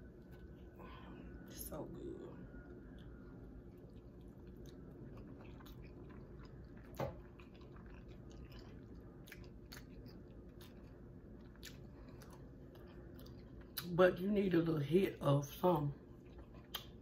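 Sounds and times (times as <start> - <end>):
person chewing food: 2.5 - 13.9, 16.0 - 17.0
small mouth clicks: 16.7 - 17.0.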